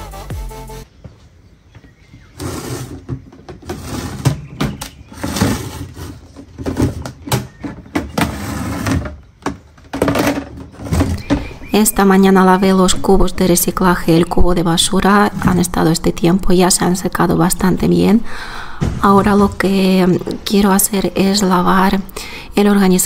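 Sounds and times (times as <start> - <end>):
background music: 0.0 - 0.9
plastic bin lids clattering: 2.4 - 11.7.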